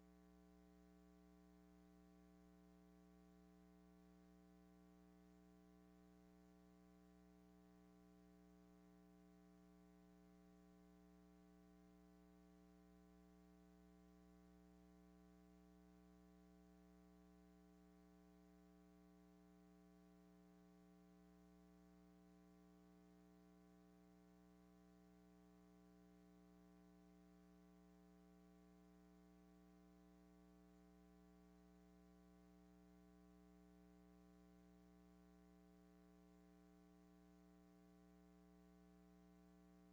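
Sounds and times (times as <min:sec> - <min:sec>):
faint electrical hum with hiss: 0:00.0 - 0:39.9.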